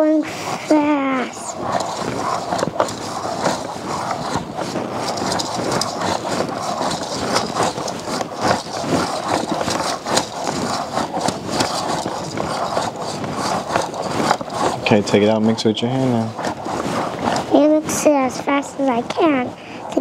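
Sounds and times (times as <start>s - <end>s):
plastic mixer rattling and scraping: 0.5s - 20.0s.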